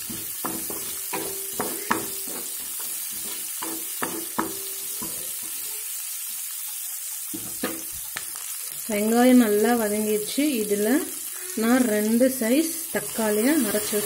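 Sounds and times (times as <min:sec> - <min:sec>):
wooden spatula scraping metal pan: 0:00.0 - 0:04.4
shallots sizzling in hot oil: 0:00.0 - 0:14.0.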